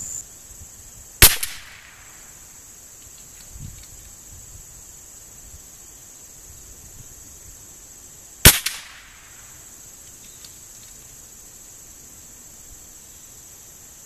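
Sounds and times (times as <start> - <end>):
rifle shot with echo: 1.2 - 2.2, 8.4 - 9.3.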